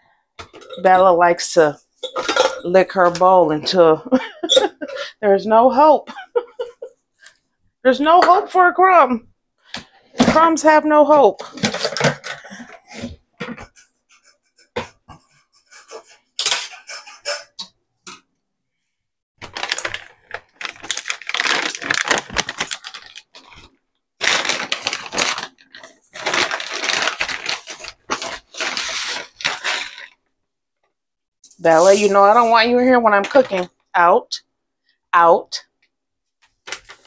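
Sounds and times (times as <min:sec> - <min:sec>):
plastic bag rustling: 0:19.4 - 0:30.2, 0:31.5 - 0:32.8, 0:36.6 - 0:37.0.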